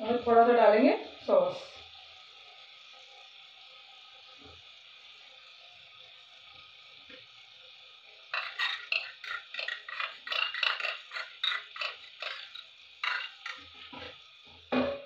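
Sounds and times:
vegetables hissing in pan: 0.0 - 15.0
wooden spatula scraping pan: 8.4 - 14.2.

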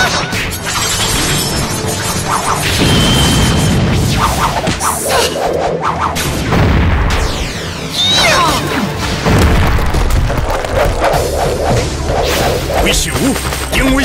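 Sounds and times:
dramatic background music: 0.0 - 14.0
whooshes: 2.2 - 7.8, 10.3 - 13.6
explosion: 6.2 - 7.9, 9.0 - 12.8.

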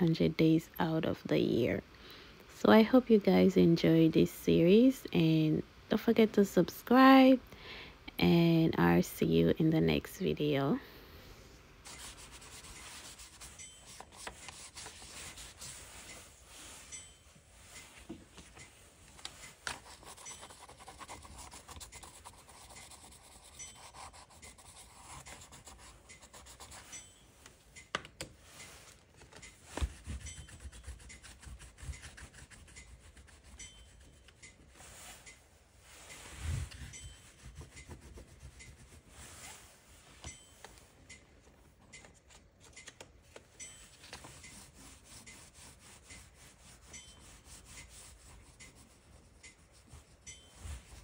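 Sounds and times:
crayons scratching on paper: 11.8 - 16.3, 19.2 - 27.0, 29.8 - 34.5, 36.1 - 39.1, 44.2 - 51.0.

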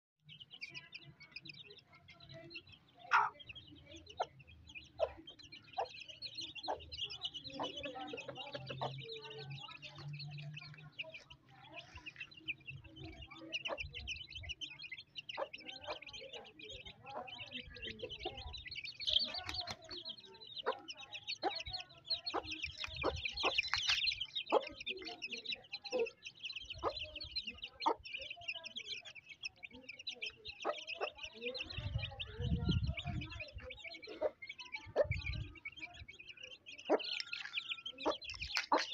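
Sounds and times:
chicks peeping: 0.2 - 38.9
hen clucking: 3.0 - 3.5, 4.1 - 9.3, 15.2 - 20.0, 20.6 - 28.0, 30.3 - 35.4.

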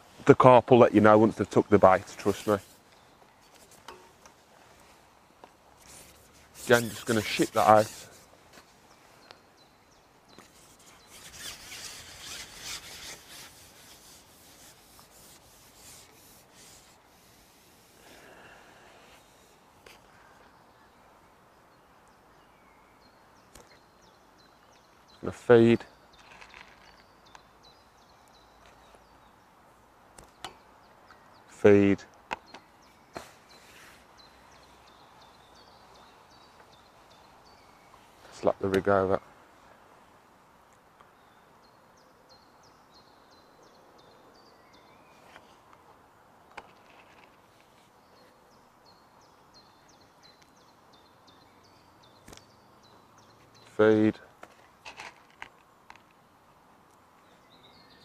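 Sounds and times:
fishing pole sections scraping: 1.8 - 4.2, 5.8 - 8.3, 10.4 - 18.0.

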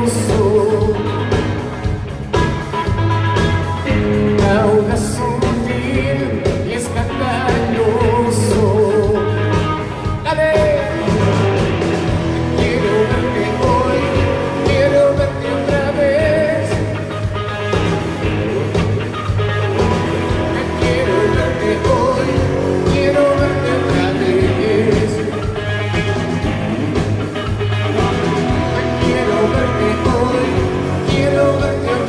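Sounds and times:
man singing into a microphone: 0.0 - 1.3, 4.3 - 11.4, 12.5 - 17.1, 20.3 - 25.5, 28.6 - 32.0
rock band playing: 0.0 - 32.0.

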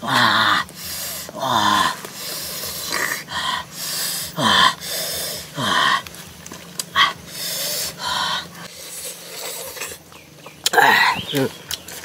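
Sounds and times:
man groaning: 0.0 - 0.7, 1.3 - 2.1, 4.3 - 4.8
man hissing breaths: 0.6 - 6.0, 7.0 - 10.0.

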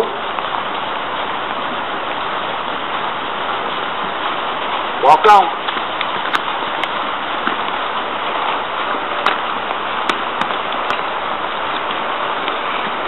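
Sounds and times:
outdoor noise hiss: 0.0 - 13.0
horse hooves clicking: 5.7 - 13.0.

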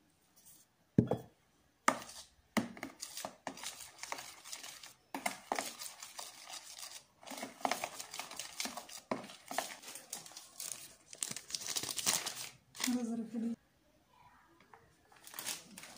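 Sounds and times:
utensil scraping plastic bowl: 1.9 - 10.3.

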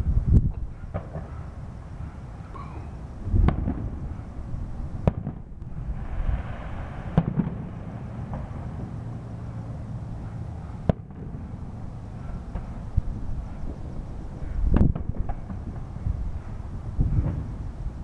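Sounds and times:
fireworks bursting with booms: 3.3 - 9.2, 14.7 - 16.3, 16.9 - 17.6
fireworks hiss: 5.6 - 9.6.

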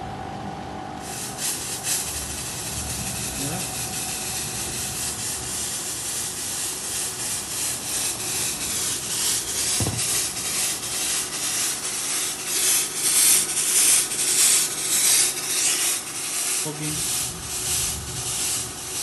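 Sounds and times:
fog sprayer blower hissing: 1.0 - 19.0
short low thump: 9.7 - 10.3.

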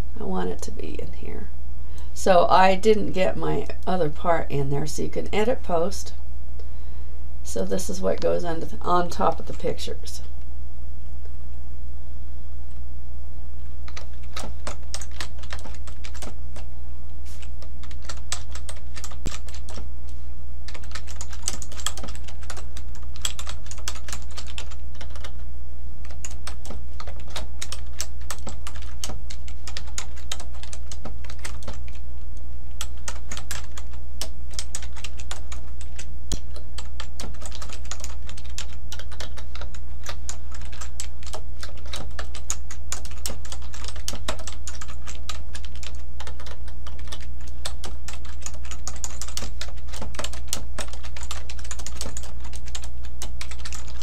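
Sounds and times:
low hum: 0.0 - 54.0
keyboard typing clicks: 13.8 - 16.4, 17.4 - 19.8, 20.7 - 25.4, 26.0 - 32.0, 32.8 - 54.0.

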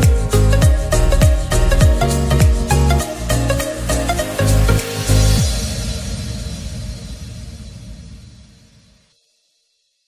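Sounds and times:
electronic music with sliding bass: 0.0 - 6.4.

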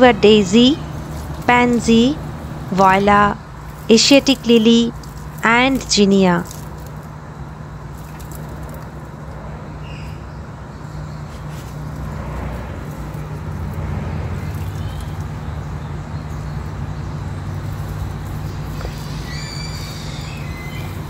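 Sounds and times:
low hum and rumble: 0.0 - 21.0
faint bird chirps: 18.4 - 21.0.

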